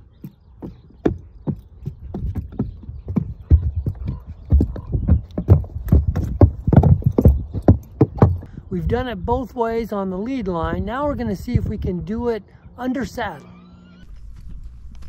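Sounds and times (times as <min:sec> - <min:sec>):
horse hooves on wooden planks: 0:00.0 - 0:08.5.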